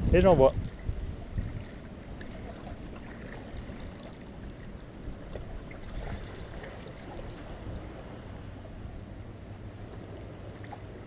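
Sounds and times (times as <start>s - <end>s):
low steady rumble: 0.0s - 11.0s
sea water lapping against rocks: 0.5s - 8.9s.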